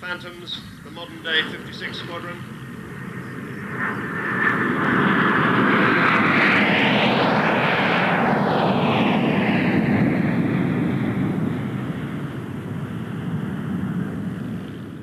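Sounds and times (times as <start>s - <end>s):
jet whoosh passing overhead: 0.0s - 15.0s
jets flying over rumbling: 0.0s - 15.0s.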